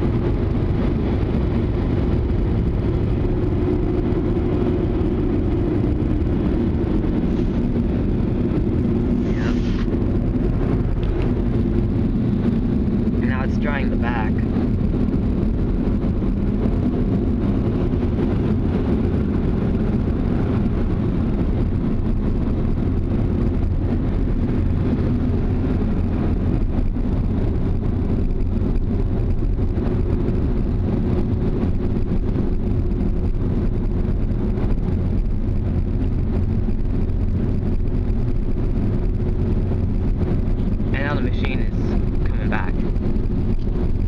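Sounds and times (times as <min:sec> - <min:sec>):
car wash blower dryers rushing: 0:00.0 - 0:14.5, 0:40.6 - 0:42.9.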